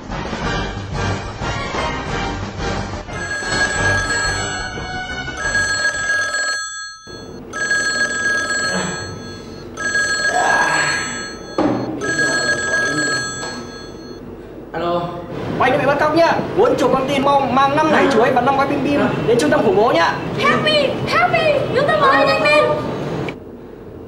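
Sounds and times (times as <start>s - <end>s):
background music: 0.0s - 5.9s
electronic telephone ringing: 3.1s - 14.2s.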